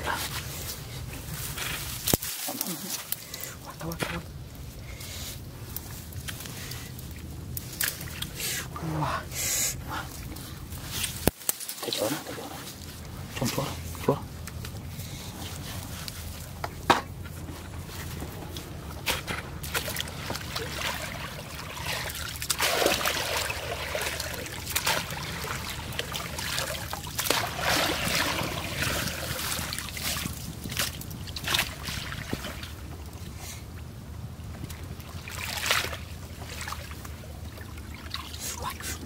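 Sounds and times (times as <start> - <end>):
grass rustling: 0.0 - 8.7, 9.5 - 33.7
muddy water splashing: 0.0 - 39.0
water trickling: 17.2 - 39.0.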